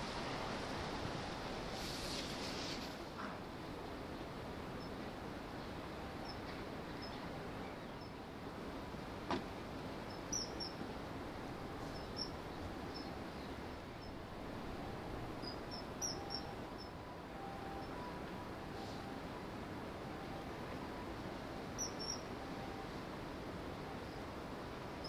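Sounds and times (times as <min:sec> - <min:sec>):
background hiss: 0:00.0 - 0:25.0
bird high thin chirps: 0:10.3 - 0:10.8.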